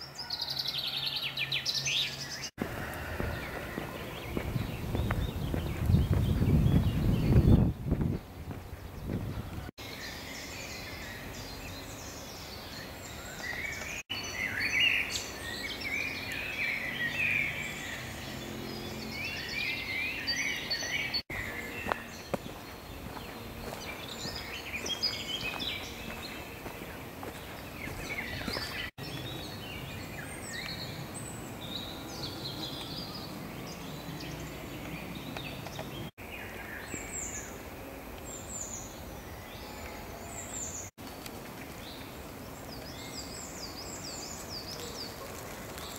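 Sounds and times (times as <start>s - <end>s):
songbirds singing: 0.0s - 45.9s.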